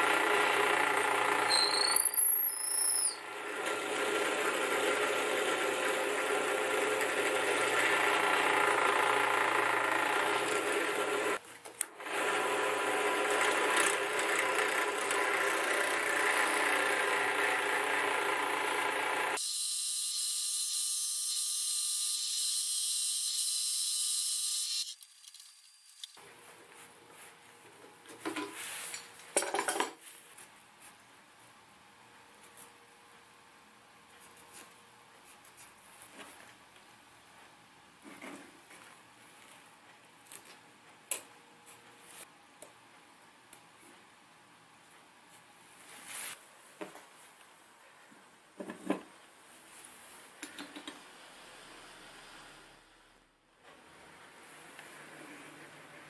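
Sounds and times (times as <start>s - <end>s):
power tool running on wood: 3.3s - 11.4s, 12.0s - 19.4s.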